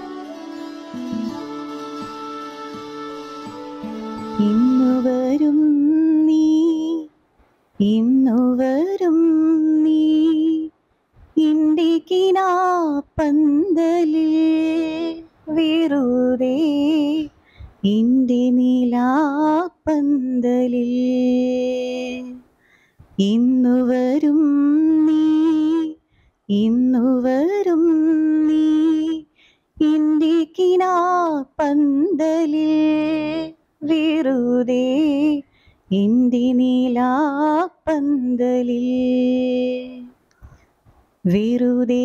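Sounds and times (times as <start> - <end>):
woman singing solo: 0.0 - 7.1.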